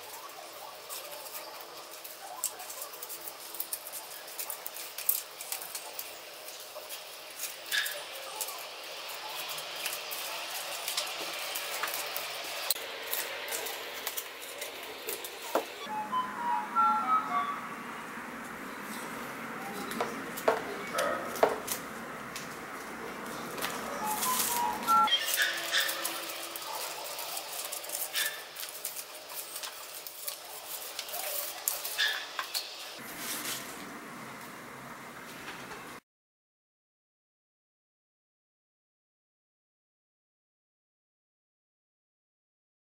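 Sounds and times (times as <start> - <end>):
scissors snipping paper: 0.0 - 15.8, 23.6 - 32.9
hiss: 6.4 - 14.5
music with light notes: 15.9 - 17.7, 24.0 - 28.0.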